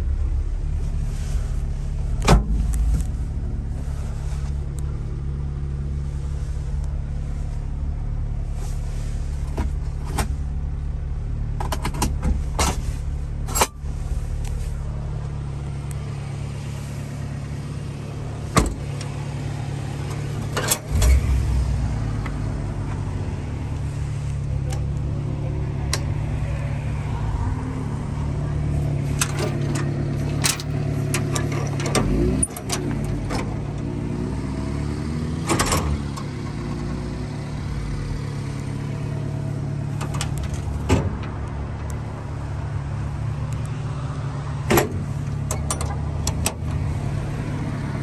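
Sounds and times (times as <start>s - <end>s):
truck engine idling: 0.0s - 32.2s
clicks and knocks from cab trim: 2.2s - 3.2s, 11.5s - 12.9s, 18.5s - 19.2s, 35.4s - 36.3s, 39.9s - 42.0s, 44.6s - 46.8s.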